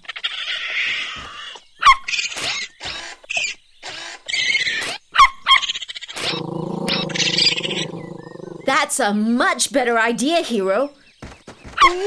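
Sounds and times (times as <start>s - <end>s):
cartoon animals hissing and squeaking: 6.2s - 8.8s.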